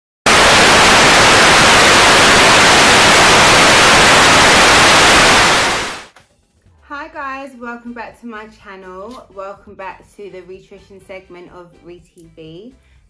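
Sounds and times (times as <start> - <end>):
television static hiss: 0.3 - 6.1.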